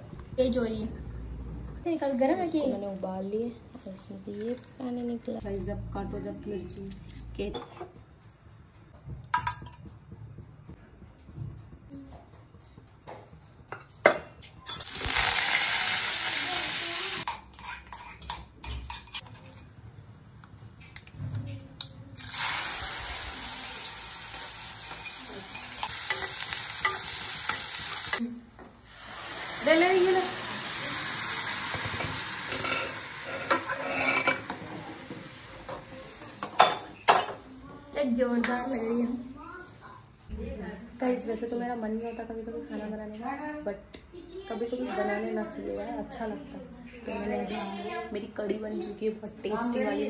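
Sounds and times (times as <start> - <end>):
hot oil sizzling: 14.7 - 17.4, 22.2 - 37.0
utensils clinking: 24.8 - 28.2, 32.4 - 34.7.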